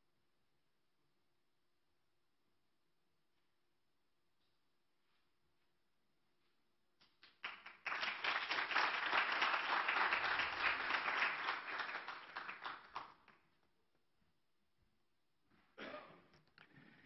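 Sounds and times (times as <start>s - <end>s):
audience applauding: 7.2s - 13.4s.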